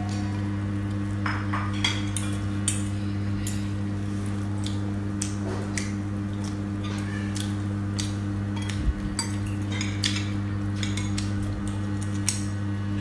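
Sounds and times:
steady low hum: 0.0s - 13.0s
cutlery clinking on ceramic bowls: 8.6s - 11.2s.

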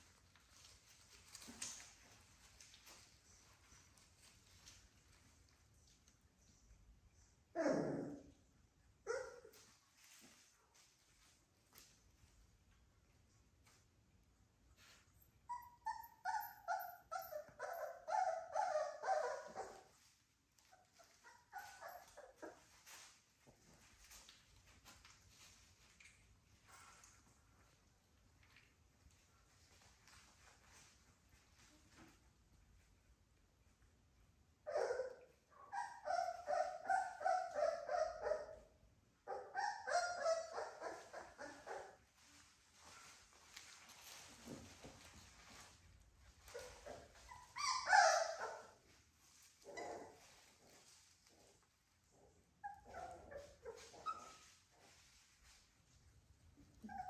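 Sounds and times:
puppies whimpering and yelping: 15.4s - 23.1s, 34.7s - 38.6s, 39.3s - 42.0s, 46.4s - 48.8s, 52.1s - 55.0s, 56.7s - 57.0s.

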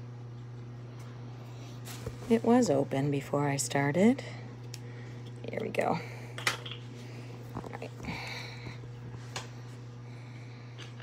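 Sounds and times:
steady low hum: 0.0s - 11.0s
kitchen items clicking and tapping: 6.4s - 6.8s.

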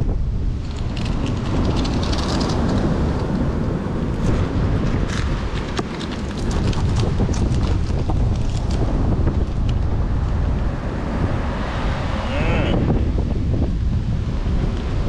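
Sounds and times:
wind buffeting microphone: 0.0s - 15.0s
microphone handling clicks and rustles: 0.5s - 3.3s, 4.2s - 9.9s.

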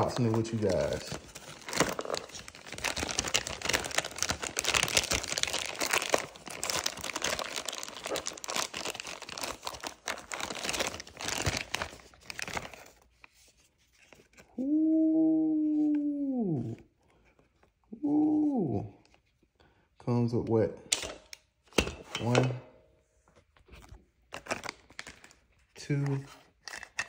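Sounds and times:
plastic bag crinkling: 0.0s - 13.1s
long held vocal tone: 14.6s - 16.9s, 17.9s - 19.0s.

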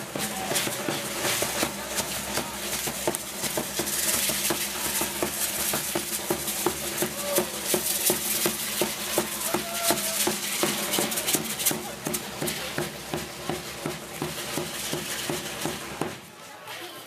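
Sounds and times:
large drum beating: 0.0s - 16.3s
hand rattles shaking: 0.2s - 12.8s.

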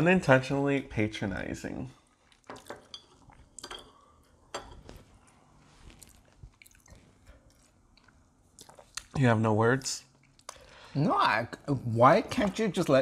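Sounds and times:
quiet chewing: 2.0s - 9.2s, 9.8s - 10.9s.

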